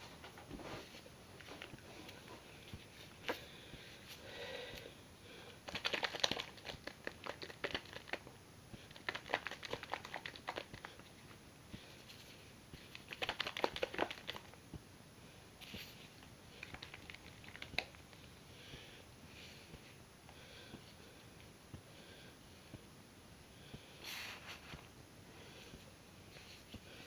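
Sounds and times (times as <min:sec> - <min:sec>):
hands squishing dye through hair: 0:05.6 - 0:11.2, 0:12.7 - 0:14.6, 0:16.5 - 0:18.3.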